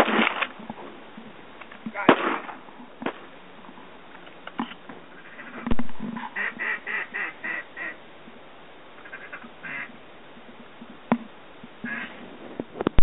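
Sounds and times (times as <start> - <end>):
duck quacking: 5.2 - 8.0, 9.0 - 9.9, 11.8 - 12.2.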